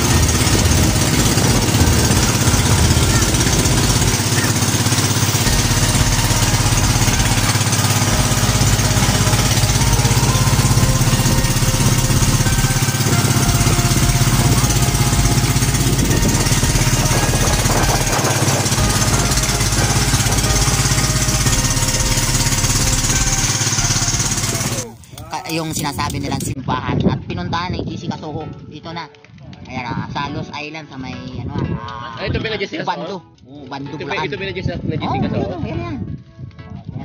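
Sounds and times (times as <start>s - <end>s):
boat engine running: 0.0s - 26.6s.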